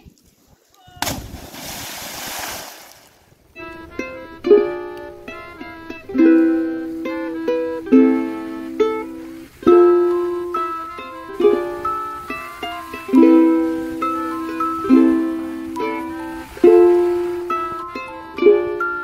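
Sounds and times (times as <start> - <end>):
splash into water: 1.0 - 3.2
ukulele music: 3.5 - 19.0.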